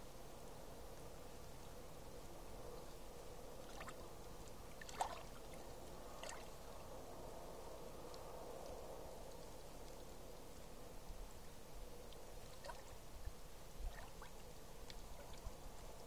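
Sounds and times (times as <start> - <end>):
seawater trickling among rocks: 3.6 - 6.7, 12.1 - 15.6
water drips: 3.6 - 6.7, 12.0 - 15.6.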